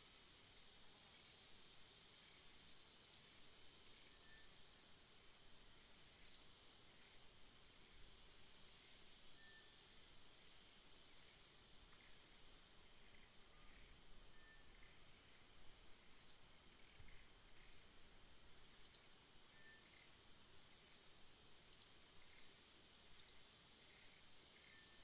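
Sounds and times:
steady high hiss: 0:00.0 - 0:25.0
small birds chirping: 0:15.7 - 0:18.0, 0:18.8 - 0:20.1.

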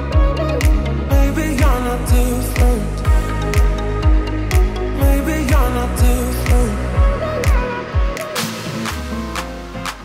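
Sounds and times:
dance-pop music: 0:00.0 - 0:10.0
kick drum: 0:02.6 - 0:05.2, 0:06.0 - 0:08.2.

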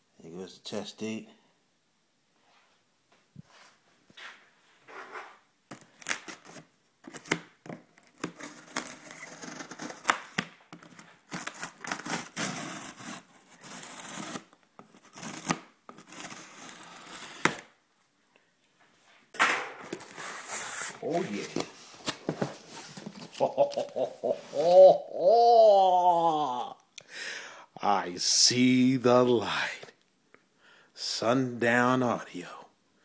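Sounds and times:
cardboard tearing and rustling: 0:08.0 - 0:17.7.

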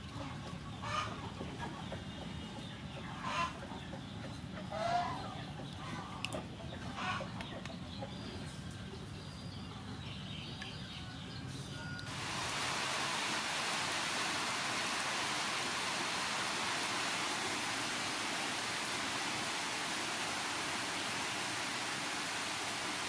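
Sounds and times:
rain falling on leaves: 0:12.0 - 0:23.0.

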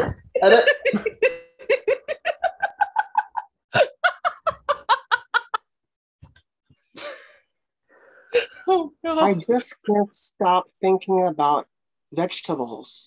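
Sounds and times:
person laughing: 0:00.0 - 0:05.6.

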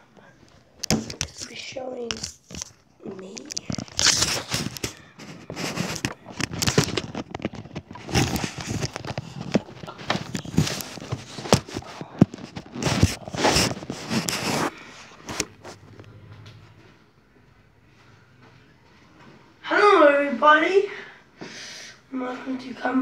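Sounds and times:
fingers handling a phone microphone: 0:00.4 - 0:16.8.

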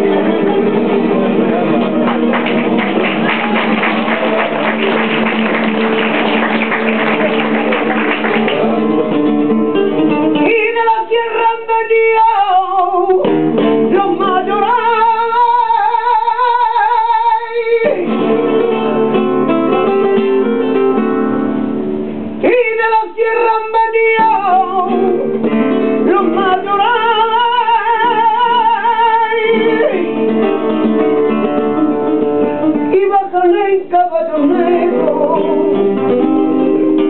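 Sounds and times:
guitars strumming fast: 0:00.0 - 0:10.6
woman singing: 0:10.3 - 0:18.6, 0:22.4 - 0:31.0, 0:32.7 - 0:36.7.

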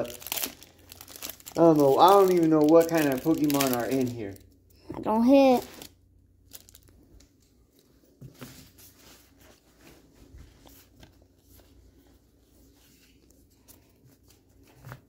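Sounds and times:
trading cards rustling: 0:00.0 - 0:04.4.

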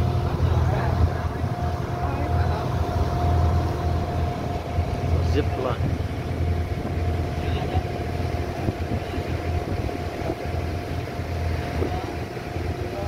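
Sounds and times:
motorboat engine drone: 0:00.0 - 0:13.0
rushing water: 0:00.0 - 0:13.0
wind: 0:00.0 - 0:13.0.

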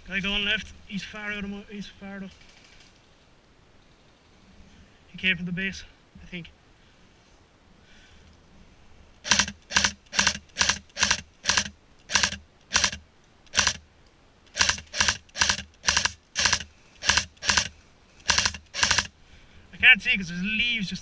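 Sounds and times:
airsoft rifle shots: 0:09.2 - 0:13.8, 0:14.5 - 0:19.1.

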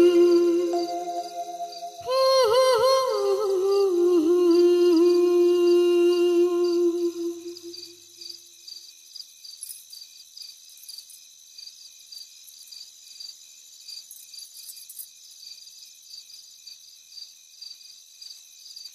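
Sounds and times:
thin high hiss: 0:00.0 - 0:08.0
crickets chirping: 0:00.0 - 0:18.9.

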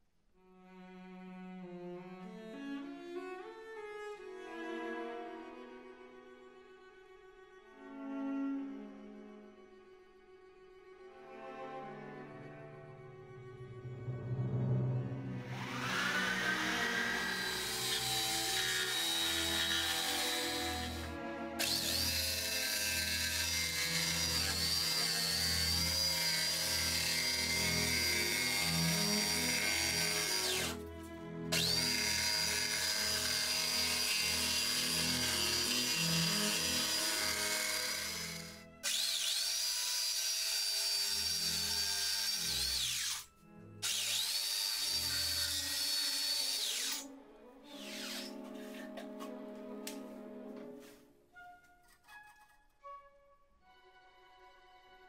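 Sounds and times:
background music: 0:00.4 - 0:55.0
electric jigsaw cutting wood: 0:15.4 - 0:30.8, 0:31.5 - 0:47.1, 0:47.7 - 0:48.4.

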